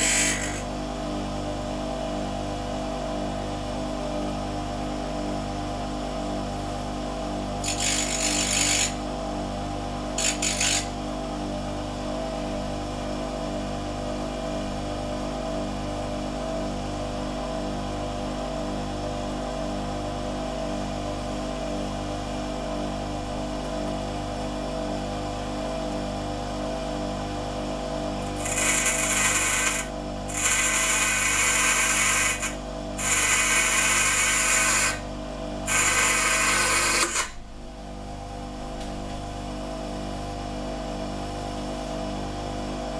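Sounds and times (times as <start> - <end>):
metal grinding hiss: 0.0 - 0.6
bench grinder motor humming: 0.0 - 0.7, 7.6 - 9.1, 10.2 - 11.0, 28.2 - 37.7.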